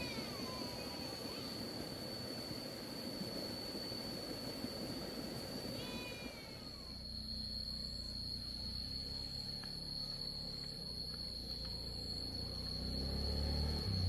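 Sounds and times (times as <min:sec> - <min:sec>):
insects singing: 0:00.0 - 0:14.0
low steady hum: 0:00.0 - 0:14.0.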